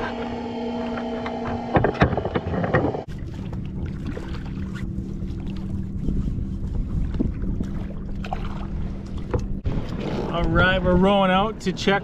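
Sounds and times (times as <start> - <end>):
steady low hum: 0.0 - 12.0
wind buffeting microphone: 5.6 - 12.0.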